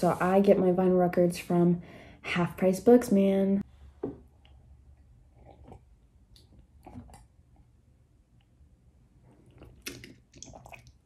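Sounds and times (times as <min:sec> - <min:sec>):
person sipping and swallowing: 0:05.2 - 0:07.6, 0:09.2 - 0:11.0
soft mouth sounds: 0:09.3 - 0:11.0.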